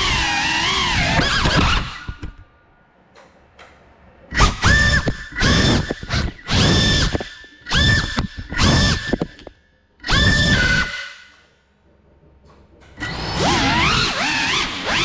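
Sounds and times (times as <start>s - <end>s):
drone motors whining: 0.0s - 2.4s, 4.3s - 11.3s, 13.0s - 15.0s.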